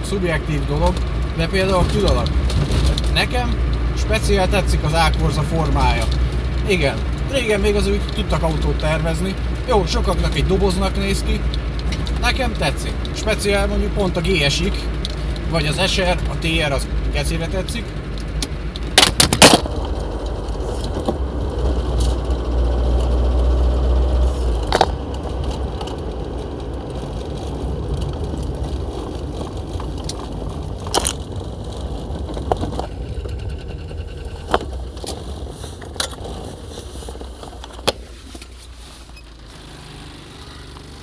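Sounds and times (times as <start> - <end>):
car engine and road rumble: 0.0 - 41.0.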